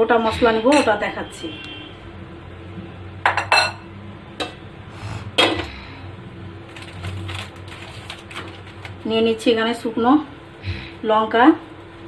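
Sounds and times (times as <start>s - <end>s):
kitchenware clinking and knocking: 3.3s - 3.8s.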